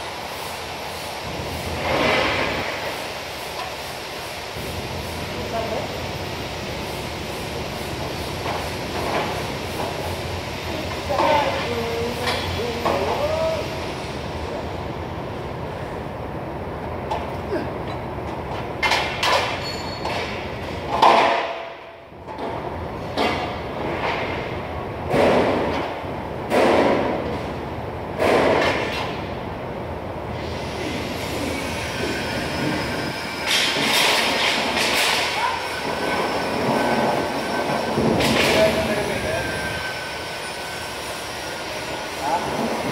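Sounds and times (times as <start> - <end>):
bursts of hiss and clatter: 0.0 - 5.4
workshop machinery noise: 0.0 - 42.9.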